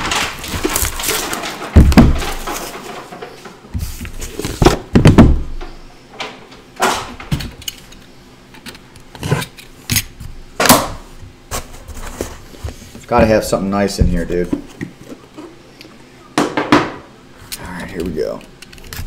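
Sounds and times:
cardboard box knocks and thuds: 0:00.0 - 0:02.6, 0:04.5 - 0:05.5
scraping rustles: 0:00.0 - 0:04.7, 0:11.5 - 0:15.6.

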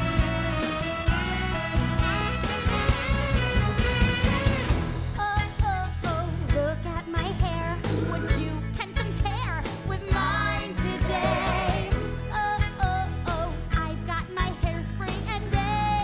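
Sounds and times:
band playing pop song: 0:00.0 - 0:16.0
woman singing: 0:05.2 - 0:16.0.

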